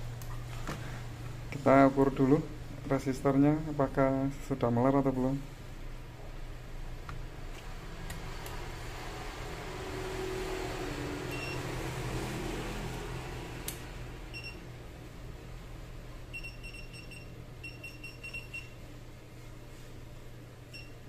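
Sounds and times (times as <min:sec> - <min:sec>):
low mains hum: 0:00.0 - 0:21.0
multimeter high beeps: 0:11.3 - 0:11.6, 0:16.3 - 0:18.8.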